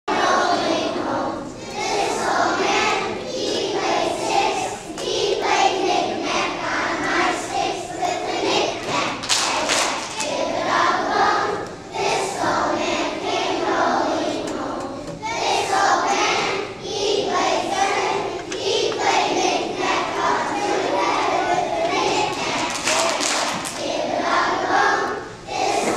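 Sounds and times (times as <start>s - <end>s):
children singing in a choir: 0.1s - 25.9s
sharp claps: 9.2s - 10.4s, 22.2s - 23.9s.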